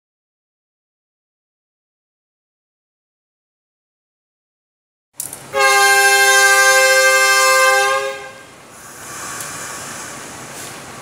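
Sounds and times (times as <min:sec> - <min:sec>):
train running: 0:05.2 - 0:11.0
locomotive horn blast: 0:05.5 - 0:10.2.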